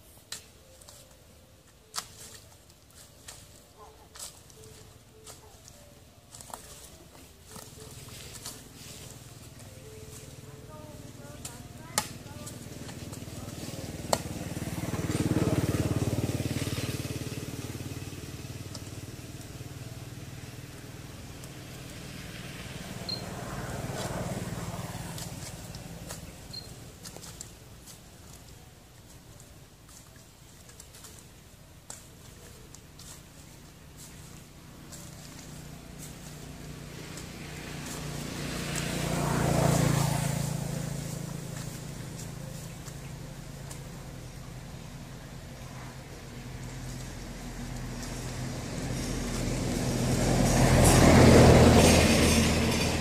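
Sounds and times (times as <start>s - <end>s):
vehicle passing by: 2.0s - 53.0s
small engine running: 7.6s - 28.4s, 32.0s - 53.0s.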